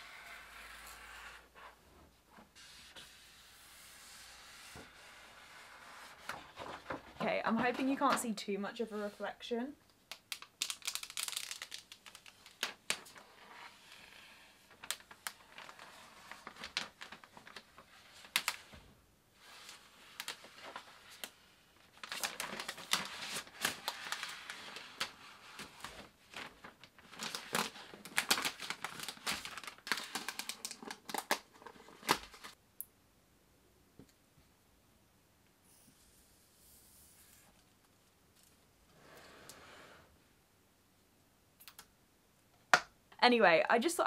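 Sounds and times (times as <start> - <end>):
plastic film crinkling while peeled: 10.1 - 13.6, 14.6 - 18.7, 19.4 - 32.6.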